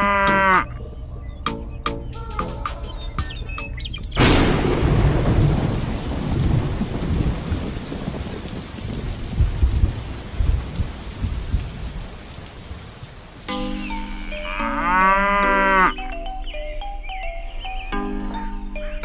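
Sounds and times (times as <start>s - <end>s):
heavy rain: 4.1s - 14.8s
thunderclap: 4.2s - 12.9s
rolling low thunder rumbles: 4.2s - 13.2s.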